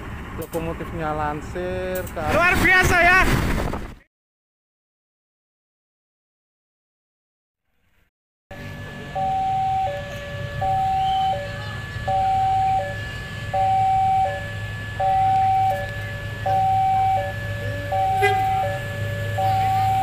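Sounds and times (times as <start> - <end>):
diesel train drone: 0.0 - 2.5, 8.5 - 20.0.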